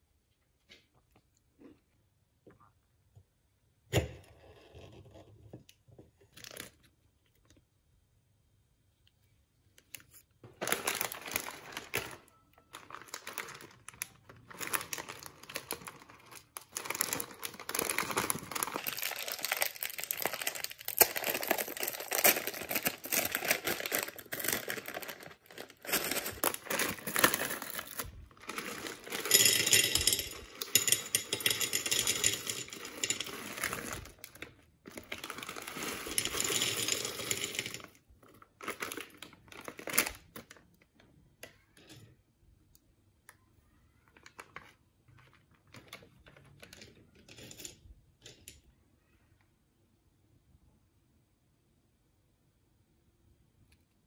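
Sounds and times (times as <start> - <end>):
plastic bag crinkling: 10.6 - 40.6
peanuts poured onto plate: 14.5 - 34.2, 35.0 - 37.9.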